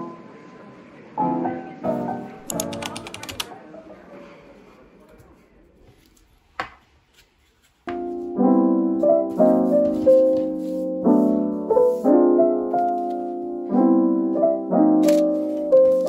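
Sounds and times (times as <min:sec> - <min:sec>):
soft piano music: 0:01.1 - 0:03.4, 0:07.9 - 0:16.0.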